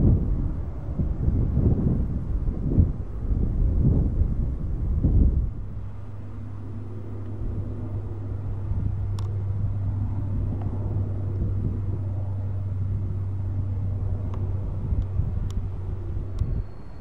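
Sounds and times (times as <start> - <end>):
engine rumble with deep hum: 0.0 - 17.0
faint sharp click: 9.2 - 9.4.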